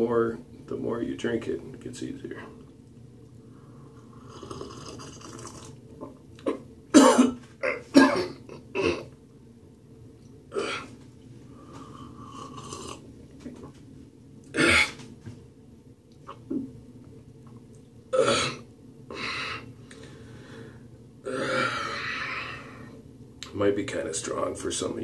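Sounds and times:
man coughing and gasping: 0:06.9 - 0:09.1.

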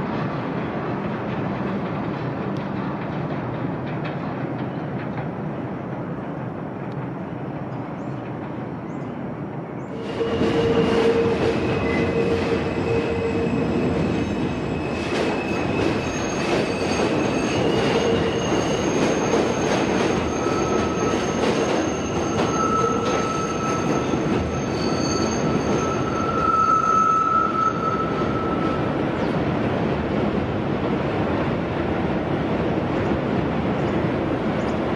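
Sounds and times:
train rumble: 0:00.0 - 0:34.9
train wheels squealing: 0:09.8 - 0:29.3.

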